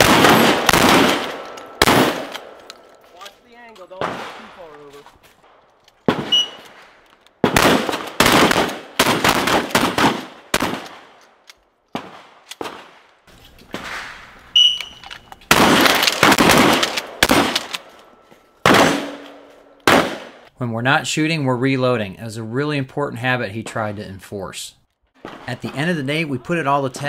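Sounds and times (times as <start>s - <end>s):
shotguns firing: 0.0s - 3.1s, 3.8s - 11.2s, 11.9s - 13.1s, 13.7s - 20.5s, 25.2s - 26.2s.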